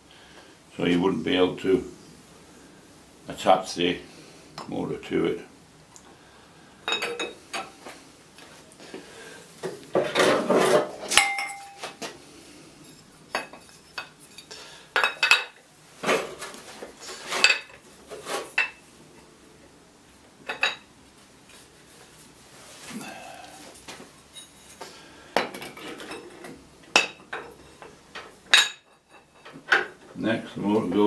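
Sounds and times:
metallic ring: 11.1 - 12.0.

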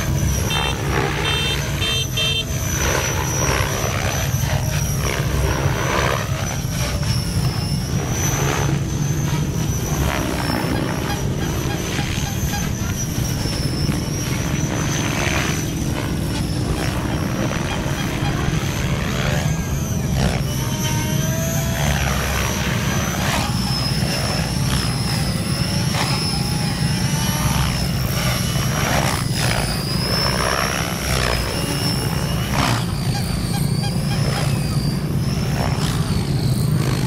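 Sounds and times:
rc helicopter motor whine: 0.0 - 37.0
rotor blades rushing: 0.0 - 37.0.

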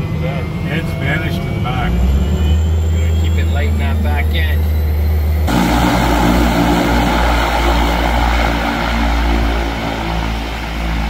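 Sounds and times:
propeller plane engine drone: 0.0 - 11.0.

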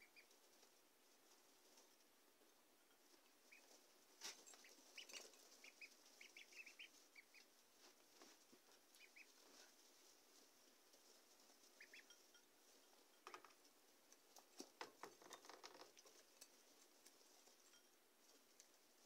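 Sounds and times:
duckling peeps: 0.0 - 0.3, 3.4 - 3.8, 4.5 - 7.5, 8.9 - 9.4, 11.7 - 12.2
ducklings rustling in wood shavings: 0.0 - 19.0.

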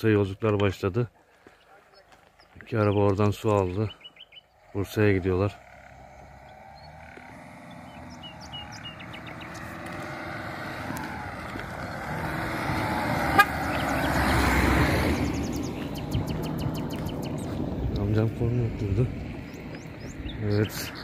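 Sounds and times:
car passing by: 4.9 - 21.0.

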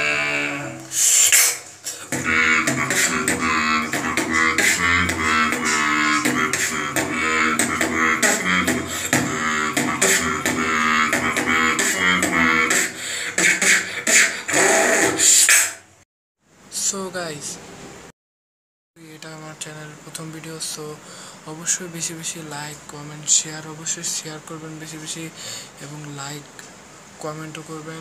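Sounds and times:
robotic beatboxing: 0.0 - 15.9.

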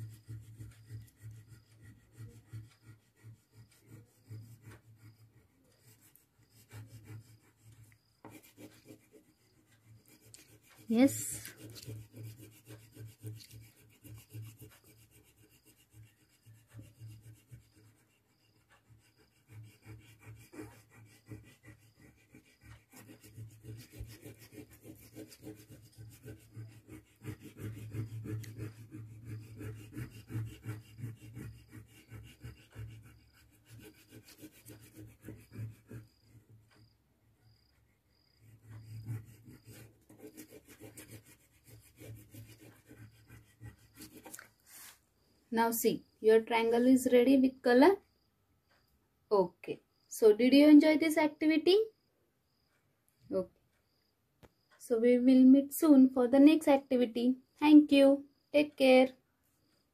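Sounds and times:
crayon rubbing on paper: 0.0 - 36.8, 38.1 - 45.0.

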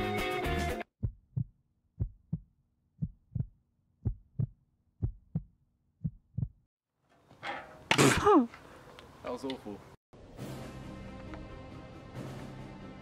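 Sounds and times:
heartbeat thumps: 1.0 - 6.7.

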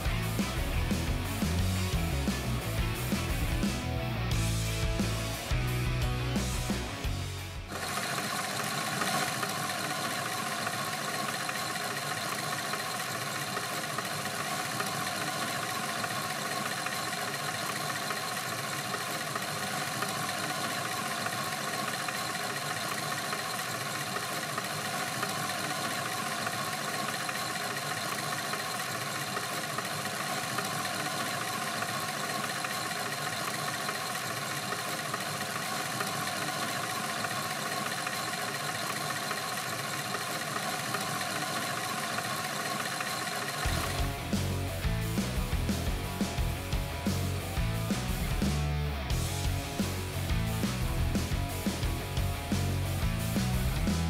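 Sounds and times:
toy motor and plastic mechanism running: 7.7 - 44.1.

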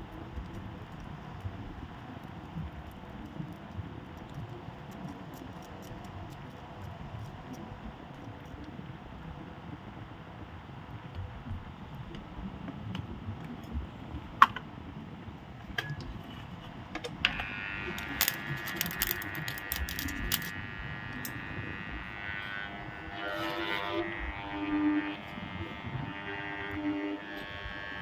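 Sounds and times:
electrical hum of growler: 0.0 - 28.0
armature clicks and rattles: 18.0 - 20.6.

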